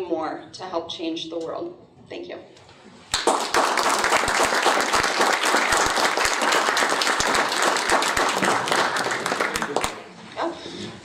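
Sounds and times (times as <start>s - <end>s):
audience applauding: 3.1s - 10.1s.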